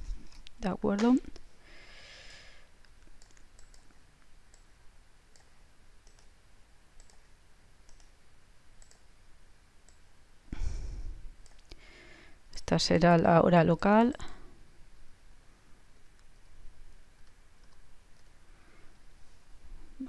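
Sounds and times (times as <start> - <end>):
computer mouse clicks: 2.8 - 6.4, 7.0 - 8.2, 8.8 - 9.1, 9.8 - 10.1, 11.4 - 11.8, 17.2 - 18.4.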